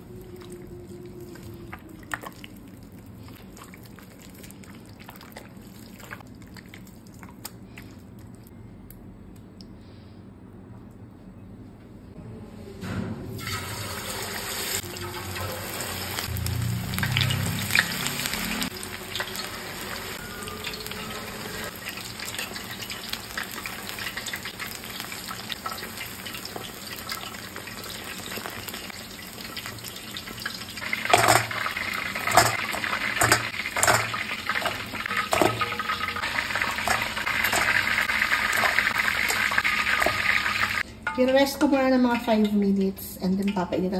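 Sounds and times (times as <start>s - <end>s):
chicken sizzling in deep fryer: 1.0s - 6.8s, 13.3s - 40.9s
metal tongs clicking on pan: 32.3s - 35.8s.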